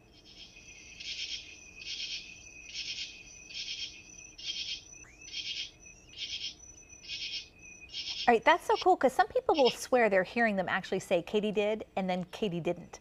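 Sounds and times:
faint high insect trill: 0:00.0 - 0:09.9
katydid rasping call: 0:00.1 - 0:09.9.

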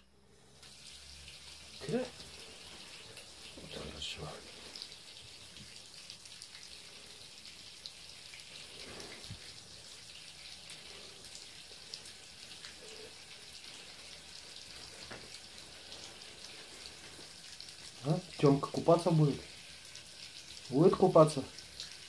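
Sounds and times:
tap water splashing into bathtub: 0:00.6 - 0:06.8, 0:07.8 - 0:10.3, 0:13.9 - 0:16.2.

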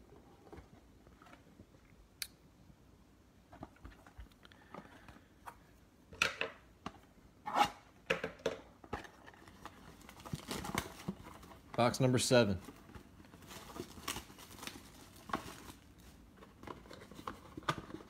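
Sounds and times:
cardboard tearing and rustling: 0:09.1 - 0:11.7, 0:12.6 - 0:18.0.

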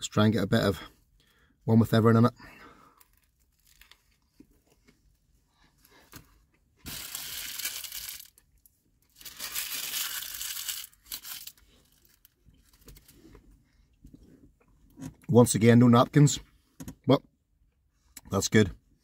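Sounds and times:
paper packaging crumpling: 0:06.9 - 0:08.4, 0:09.1 - 0:12.8.

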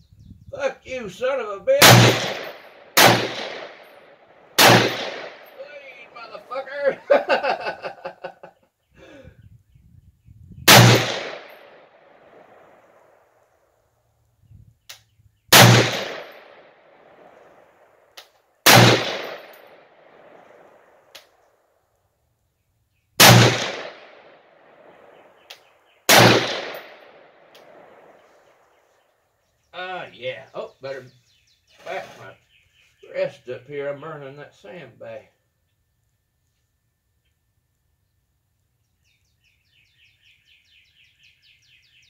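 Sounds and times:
rifle shots with echo: 0:01.8 - 0:06.4, 0:10.7 - 0:13.3, 0:15.5 - 0:18.0, 0:18.6 - 0:21.1, 0:23.2 - 0:25.5, 0:26.1 - 0:28.7.

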